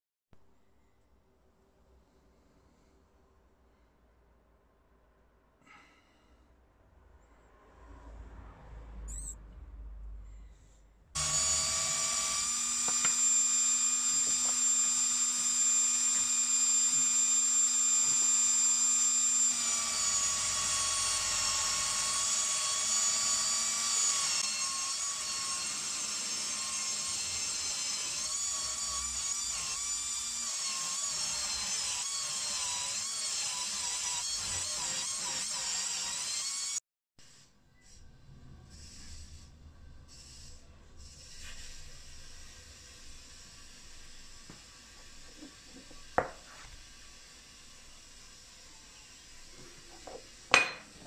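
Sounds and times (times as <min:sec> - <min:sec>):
power tool motor whine: 0:11.2 - 0:36.8.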